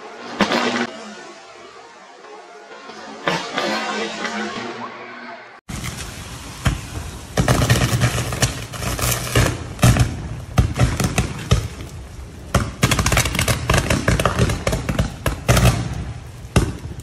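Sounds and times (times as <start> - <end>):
electric arcing cracks and pops: 5.7 - 17.0.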